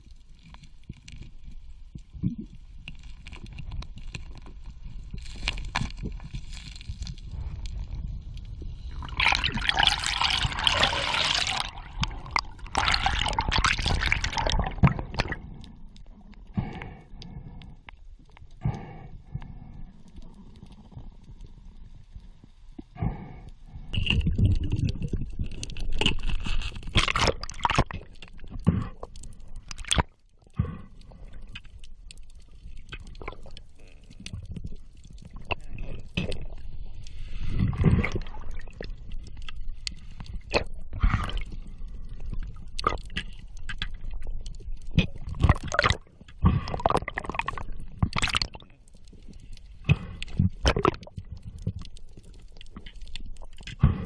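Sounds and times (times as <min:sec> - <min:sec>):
underwater knocks and scrapes: 0:09.4 - 0:15.8, 0:24.0 - 0:54.0.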